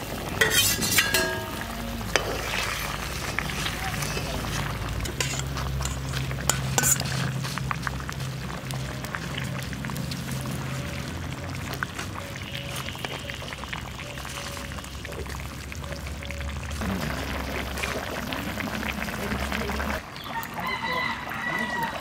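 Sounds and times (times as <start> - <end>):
curry bubbling in a wok: 0.0 - 22.0
metal spatula clinking on wok: 0.4 - 2.4, 5.0 - 7.1.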